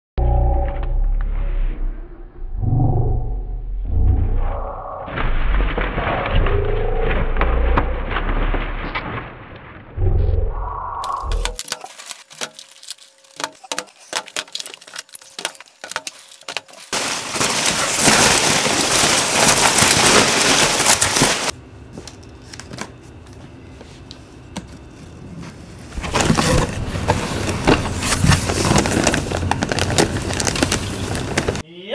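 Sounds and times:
packing peanuts rustling: 0:11.0 - 0:23.0, 0:25.9 - 0:31.6.

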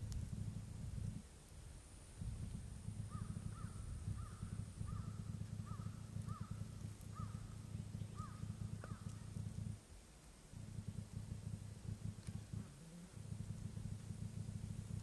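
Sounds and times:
continuous low rumble: 0:00.0 - 0:15.0
moorhen short calls: 0:03.1 - 0:09.3.

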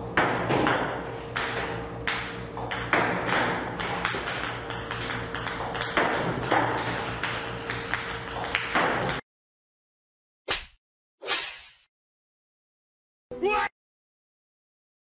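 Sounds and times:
table tennis balls bouncing: 0:00.0 - 0:09.2.

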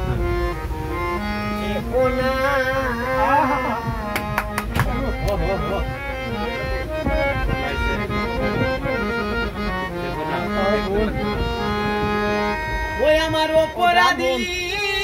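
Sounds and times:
harmonium melody: 0:00.0 - 0:15.0.

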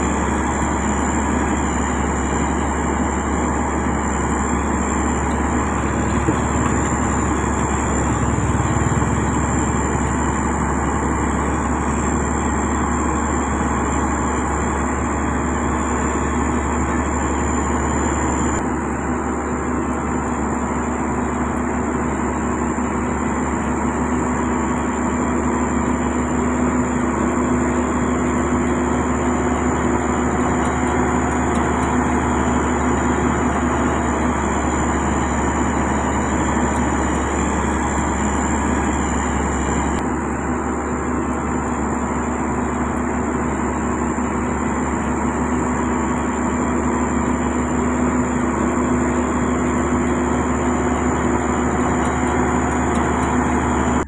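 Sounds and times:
steady high tone: 0:00.0 - 0:14.3
diesel engine drone: 0:00.0 - 0:54.0.

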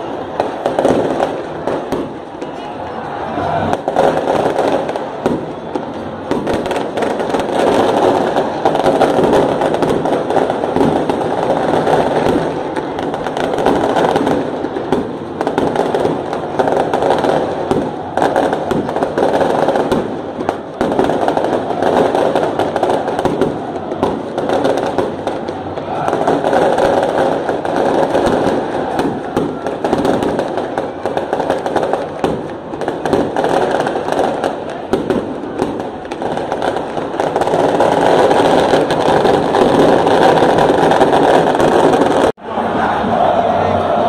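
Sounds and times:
stadium crowd noise: 0:00.0 - 0:44.0.

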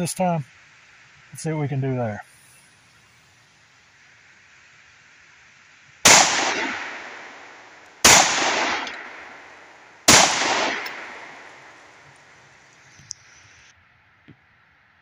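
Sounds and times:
pistol shots: 0:06.1 - 0:12.0.

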